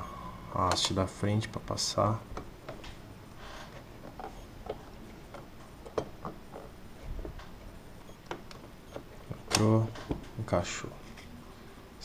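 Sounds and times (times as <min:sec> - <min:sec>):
memory module clicking into slot: 0:09.5 - 0:09.8.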